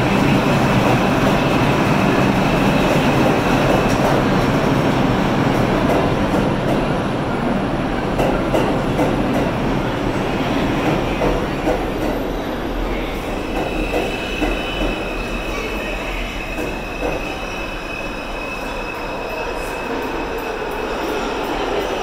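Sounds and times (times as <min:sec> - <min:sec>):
subway train rumble and clatter: 0:00.0 - 0:22.0
high wheel squeal: 0:13.0 - 0:21.3.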